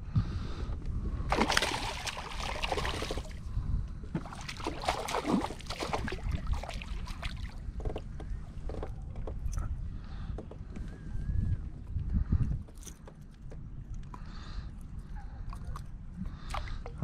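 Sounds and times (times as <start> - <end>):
fish splashing in water: 1.3 - 3.4, 4.2 - 7.6.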